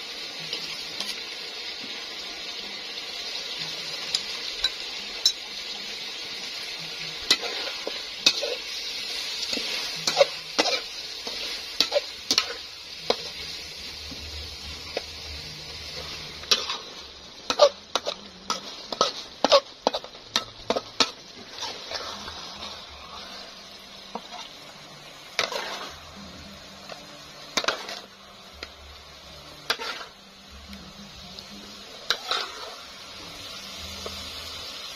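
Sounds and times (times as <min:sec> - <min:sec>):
fish sizzling in sauce: 0:00.0 - 0:34.9
metal spatula scraping wok: 0:06.5 - 0:28.8, 0:29.6 - 0:30.2, 0:31.8 - 0:34.2.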